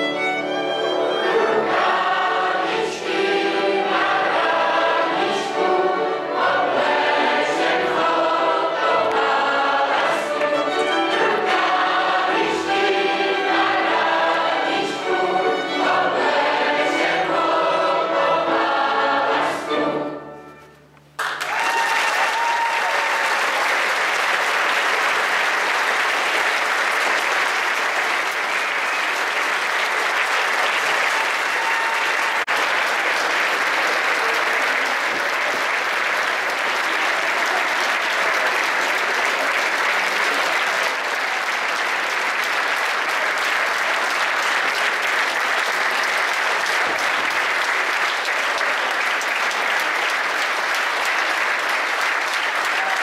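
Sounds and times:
crowd applauding: 21.2s - 53.0s.

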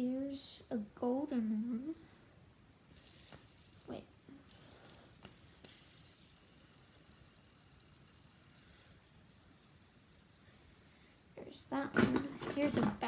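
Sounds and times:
fidget spinner whirring: 2.8s - 13.0s
fidget spinner clicks: 2.9s - 11.4s.

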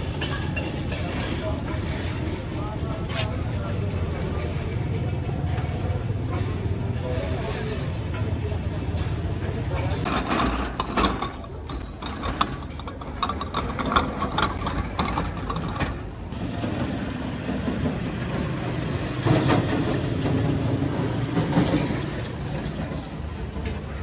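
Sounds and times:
vehicles passing: 0.0s - 24.0s
sharp clicks and clatter: 10.0s - 16.4s.

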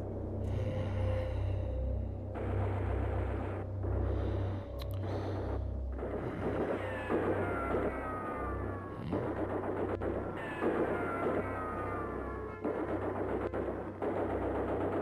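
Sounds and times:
low drone: 0.0s - 15.0s.

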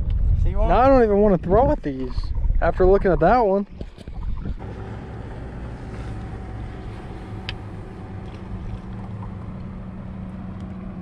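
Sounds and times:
wind rumbling on microphone: 0.0s - 11.0s
electric trolling motor humming: 4.6s - 11.0s.

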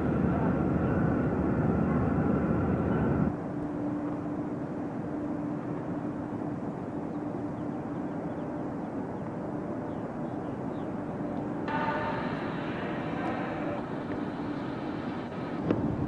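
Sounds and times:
car road and engine noise: 8.8s - 16.0s.

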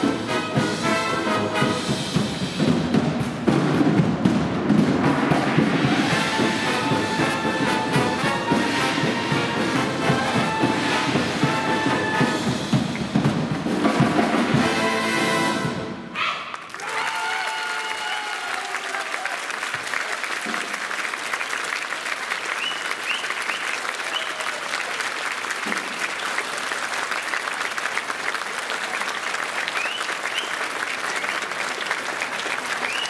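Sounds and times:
brass band chord: 0.0s - 2.5s, 5.2s - 12.9s, 13.7s - 16.1s
audience applauding: 16.5s - 33.0s.

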